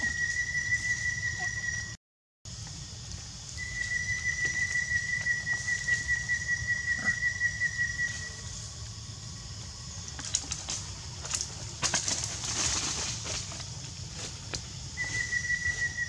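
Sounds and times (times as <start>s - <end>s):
high-pitched whistle tone: 0.0s - 2.0s, 15.0s - 16.0s.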